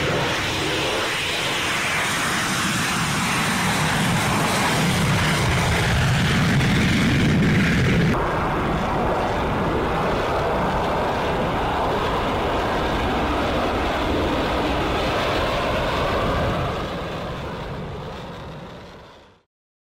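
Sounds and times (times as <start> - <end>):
jet engine roar at takeoff: 0.0 - 19.5.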